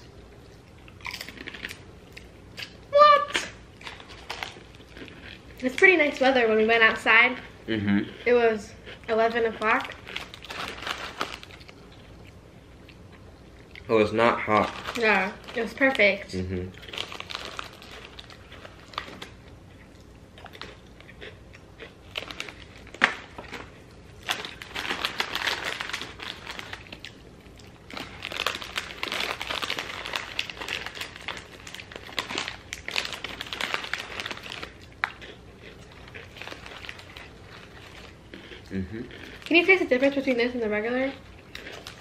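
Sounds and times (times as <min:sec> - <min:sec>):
plastic pouches crinkling: 0:03.8 - 0:05.4, 0:09.5 - 0:11.8, 0:14.2 - 0:16.2, 0:16.8 - 0:19.4, 0:22.1 - 0:27.1, 0:27.9 - 0:38.5.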